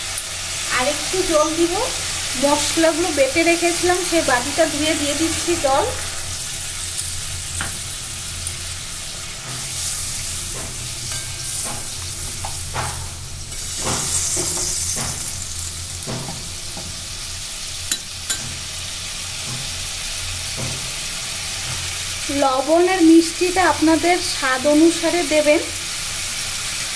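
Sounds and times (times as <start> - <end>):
gravy sizzling and bubbling: 0.0 - 26.9.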